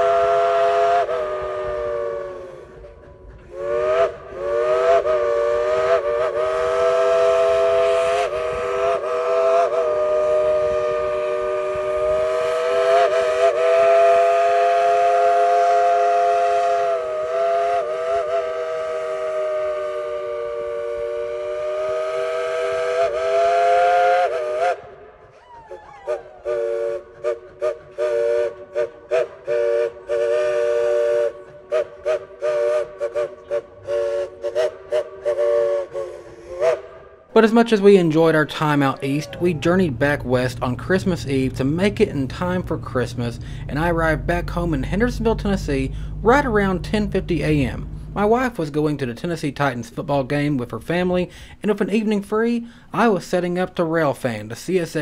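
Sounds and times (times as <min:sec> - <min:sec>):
steam locomotive chime whistle: 0:00.0 - 0:24.9, 0:39.2 - 0:48.5.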